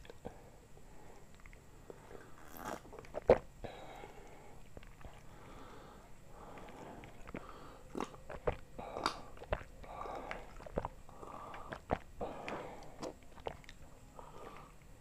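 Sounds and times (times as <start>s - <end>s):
gulps and swallows: 1.2s - 15.0s
wet mouth clicks: 2.4s - 3.5s, 6.5s - 14.9s.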